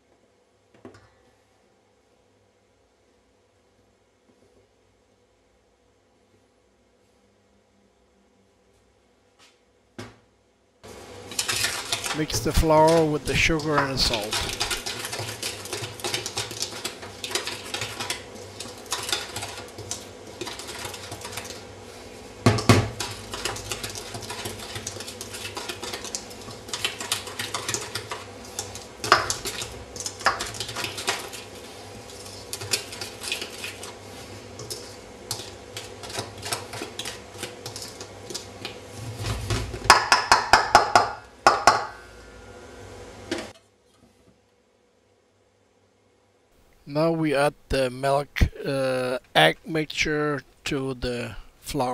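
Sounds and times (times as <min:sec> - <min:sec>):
whisk clinking against metal bowl: 0:11.4 - 0:19.8.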